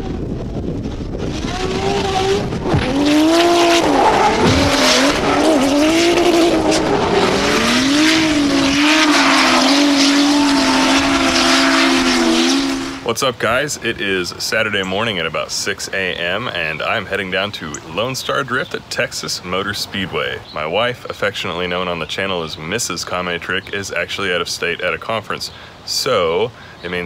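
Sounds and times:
car engine revving: 0:00.0 - 0:13.1
tyres squealing: 0:03.6 - 0:13.1.

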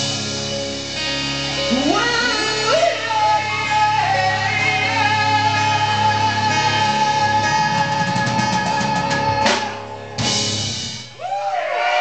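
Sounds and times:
crowd cheering and whistling: 0:11.0 - 0:12.0.

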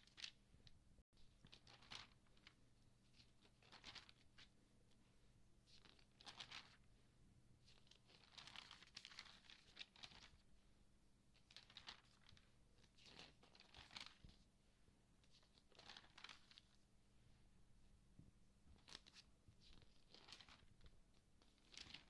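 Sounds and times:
magazine pages turning: 0:01.4 - 0:04.5, 0:05.7 - 0:06.8, 0:07.7 - 0:10.4, 0:11.4 - 0:14.4, 0:15.3 - 0:16.8, 0:18.8 - 0:22.0.

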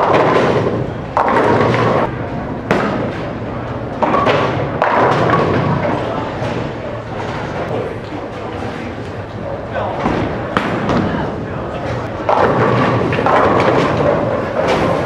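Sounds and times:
bowling pins crashing: 0:00.0 - 0:02.1, 0:04.0 - 0:06.6, 0:12.2 - 0:15.0
bowling lanes rumble: 0:00.0 - 0:15.0.

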